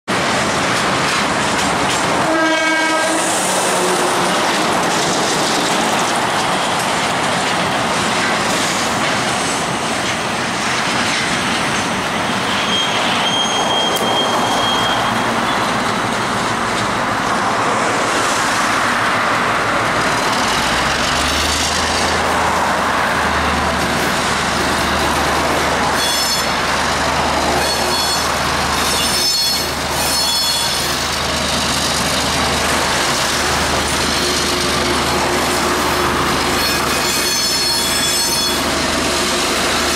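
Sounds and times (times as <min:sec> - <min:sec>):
diesel locomotive engine under load: 0:00.1 - 0:39.9
road and wind noise: 0:00.1 - 0:39.9
train horn blast: 0:02.2 - 0:04.1.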